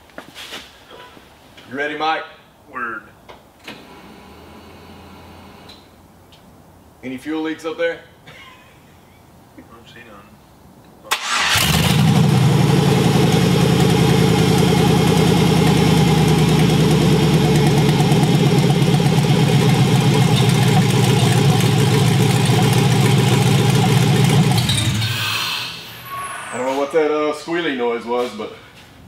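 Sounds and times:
unmuffled engine running: 0:12.2 - 0:25.2.

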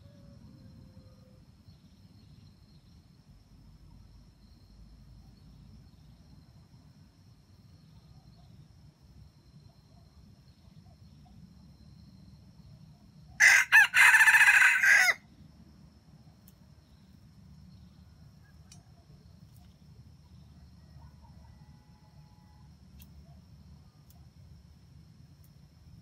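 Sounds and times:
rooster crowing: 0:13.4 - 0:15.2.

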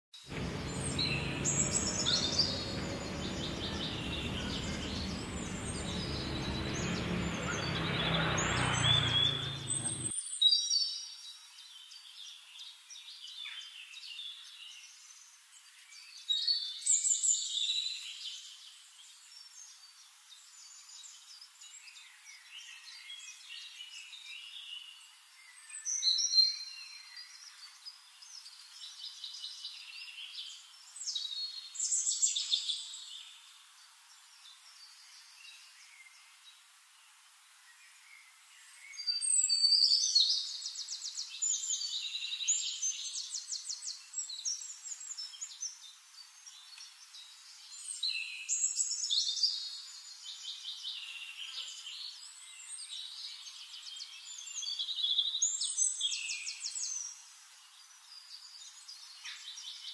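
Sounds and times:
rushing noise: 0:00.3 - 0:10.1
small birds chirping: 0:00.3 - 0:10.2.

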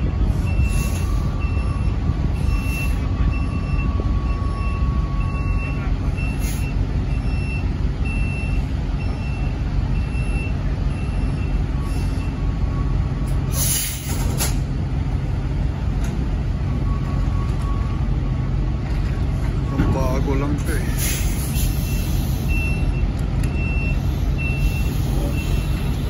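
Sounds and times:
backup alarm beeping: 0:00.0 - 0:13.1, 0:21.8 - 0:26.0
truck diesel engine running: 0:00.0 - 0:26.0
air brake hiss: 0:00.6 - 0:01.4, 0:06.4 - 0:06.7, 0:13.5 - 0:14.6, 0:20.9 - 0:22.6, 0:24.0 - 0:26.0.

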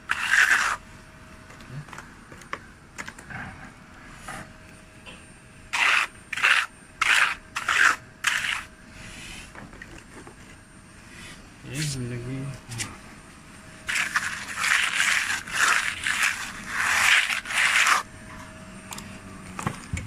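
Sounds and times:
trowel scraping wet plaster: 0:00.1 - 0:00.8, 0:05.7 - 0:08.7, 0:13.9 - 0:18.1.

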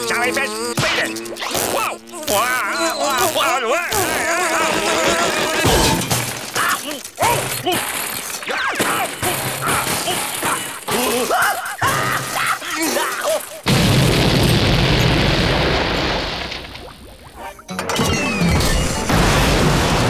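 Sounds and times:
loud explosion boom with rumble: 0:13.7 - 0:17.2, 0:19.1 - 0:20.0.

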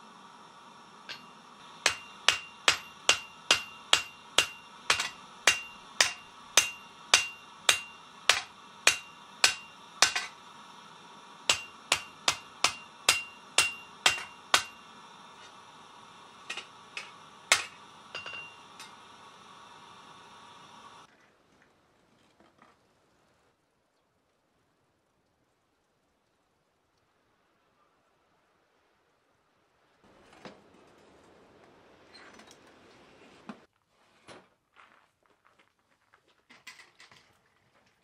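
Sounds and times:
hammer ringing on anvil: 0:01.1 - 0:10.4, 0:11.5 - 0:14.9, 0:16.5 - 0:19.0.

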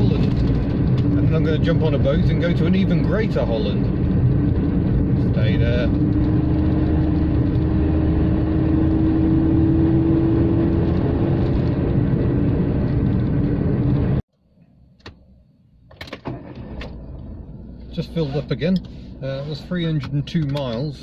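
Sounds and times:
car engine running: 0:00.0 - 0:14.2
road and tyre noise: 0:00.0 - 0:21.0.

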